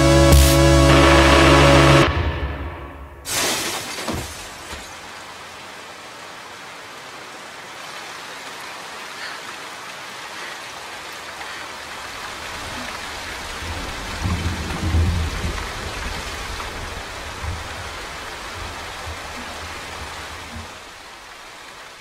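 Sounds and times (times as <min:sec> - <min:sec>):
heavy rain falling: 0:00.0 - 0:22.0.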